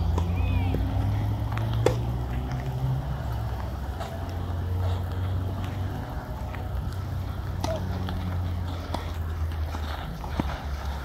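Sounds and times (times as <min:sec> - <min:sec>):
tennis balls struck by rackets: 0:00.0 - 0:02.9, 0:07.4 - 0:09.6
low outdoor rumble: 0:00.0 - 0:11.0.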